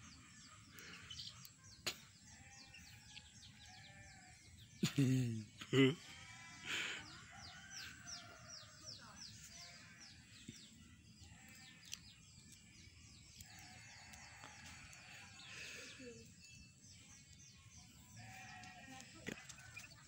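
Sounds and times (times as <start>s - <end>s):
baby chick peeping: 18.6s - 20.0s.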